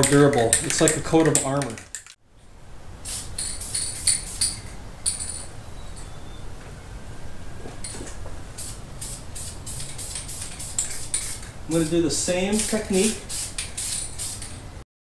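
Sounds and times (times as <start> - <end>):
spray can mixing ball clinking: 0.0 - 2.2, 3.1 - 5.5, 8.6 - 14.6
low steady hum: 0.0 - 14.8.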